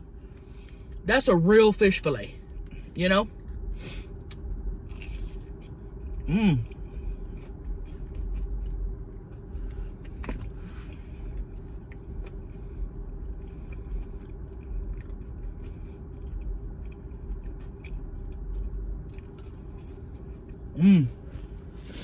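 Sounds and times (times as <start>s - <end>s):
steady low hum: 0.0s - 22.0s
chewing fried fish: 3.4s - 10.5s, 11.3s - 20.8s.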